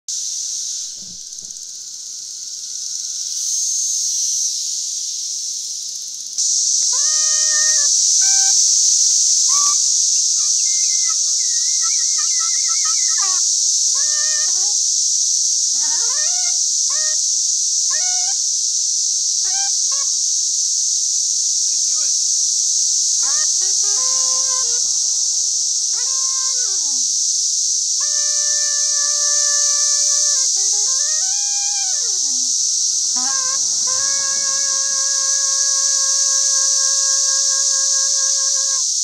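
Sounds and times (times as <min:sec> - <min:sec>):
cicadas chorus: 0:00.1 - 0:39.0
soprano saxophone phrases: 0:06.9 - 0:08.6, 0:09.5 - 0:14.8, 0:15.8 - 0:17.2, 0:17.9 - 0:18.4, 0:19.4 - 0:20.2, 0:21.7 - 0:22.2, 0:23.2 - 0:27.1, 0:28.0 - 0:38.8.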